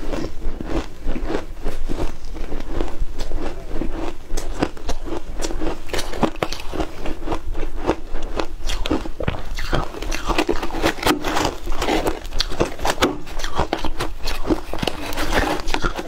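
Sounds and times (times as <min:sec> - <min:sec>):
ice being chewed: 0:00.0 - 0:16.0
metal spoon scraping ice: 0:08.7 - 0:16.0.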